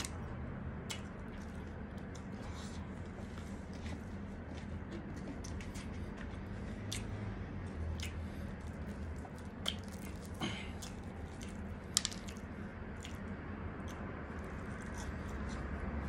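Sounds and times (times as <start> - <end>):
low steady hum: 0.0 - 16.0
chewing: 0.8 - 15.8
fried chicken crackling being torn: 8.1 - 12.4.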